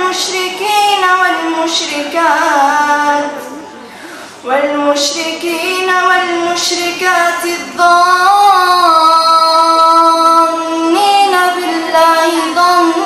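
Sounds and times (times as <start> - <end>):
girl reciting melodic chant: 0.0 - 3.6, 4.4 - 13.0.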